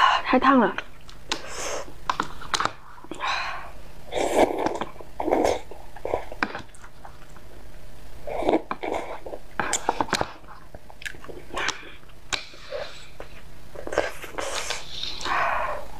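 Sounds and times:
person slurping noodles: 0:04.1 - 0:06.4, 0:08.2 - 0:10.2.

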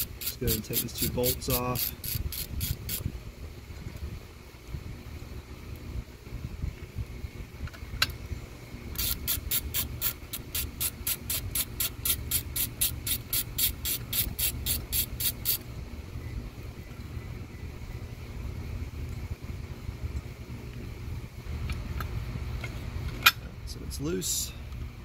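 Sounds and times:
socket ratchet clicking: 0:00.0 - 0:03.0, 0:09.0 - 0:15.6.

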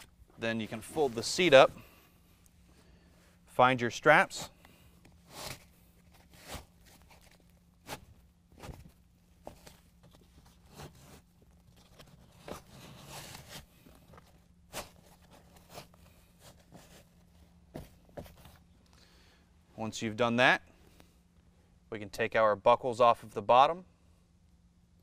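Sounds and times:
fabric and straps rustling: 0:00.0 - 0:02.0.

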